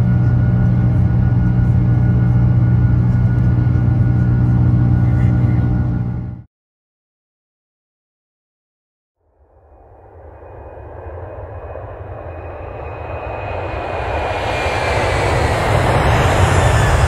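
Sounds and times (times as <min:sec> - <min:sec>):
jet engine rumble and hiss: 0:00.0 - 0:06.4, 0:09.9 - 0:17.0
high jet engine whine: 0:00.0 - 0:06.5, 0:09.2 - 0:17.0.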